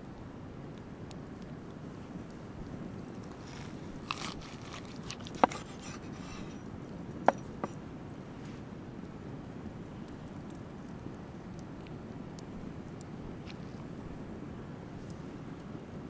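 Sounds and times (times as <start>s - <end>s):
cleaver slicing raw meat: 4.0s - 6.5s
blade knocking on wooden board: 5.4s - 5.8s.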